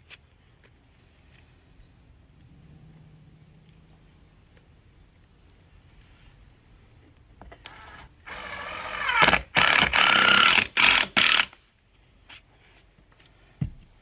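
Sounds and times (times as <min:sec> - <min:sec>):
power tool motor running: 0:07.6 - 0:11.6.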